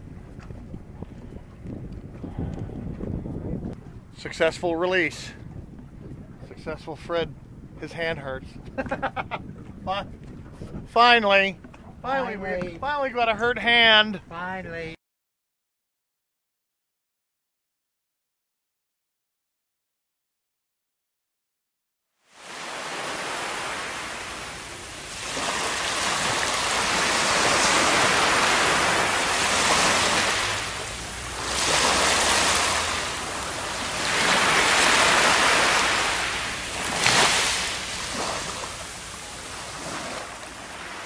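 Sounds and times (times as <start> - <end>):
surf washing up beach: 22.3 - 41.0.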